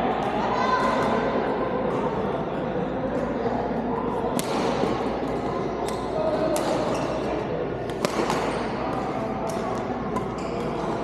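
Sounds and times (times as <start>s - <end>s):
murmur of voices: 0.0s - 11.0s
rackets striking a shuttlecock: 4.3s - 7.2s, 7.8s - 10.9s.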